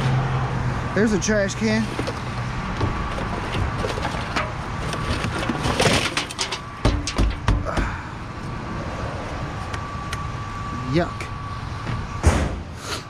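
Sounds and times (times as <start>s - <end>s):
sharp knocks and dull thumps: 2.0s - 8.0s.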